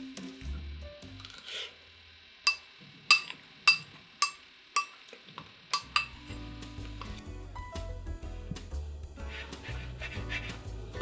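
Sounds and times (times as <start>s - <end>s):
metal spoon clinking glass bowl: 2.5s - 5.0s, 5.8s - 6.3s
background music: 5.9s - 11.0s.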